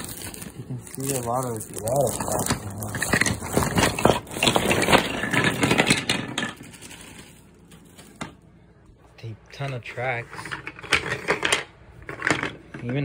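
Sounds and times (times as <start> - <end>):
wooden toy track pieces clattering: 0.0 - 8.4, 9.6 - 13.0.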